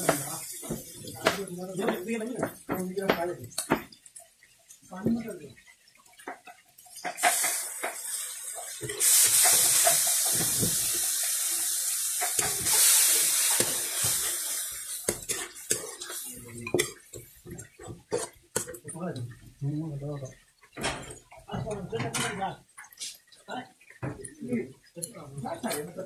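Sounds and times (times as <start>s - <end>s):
water sizzling in hot pan: 0.0s - 26.0s
metal spoon scraping a pan: 12.1s - 18.8s.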